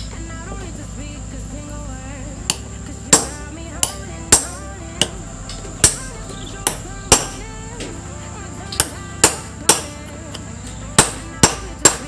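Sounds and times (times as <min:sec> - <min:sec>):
background music: 0:00.0 - 0:12.0
hammer striking metal socket: 0:05.8 - 0:07.4, 0:08.7 - 0:10.4, 0:11.0 - 0:12.0.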